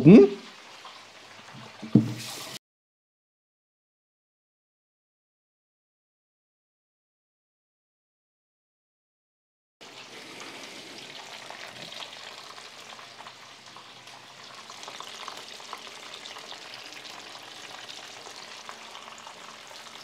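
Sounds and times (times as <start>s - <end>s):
food frying in hot oil: 0.0s - 2.6s, 9.8s - 20.0s.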